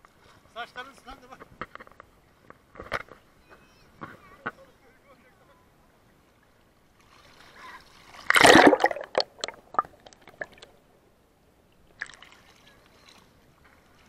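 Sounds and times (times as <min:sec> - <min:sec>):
crackling drips and bubbles: 0:07.0 - 0:10.8
water splashing over camera: 0:07.1 - 0:10.7.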